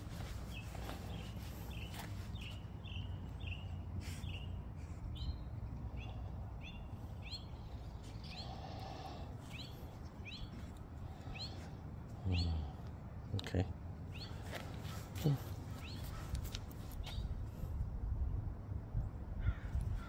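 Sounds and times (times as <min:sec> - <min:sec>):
bird chirping: 0:00.2 - 0:12.7, 0:14.1 - 0:15.0, 0:15.7 - 0:17.3.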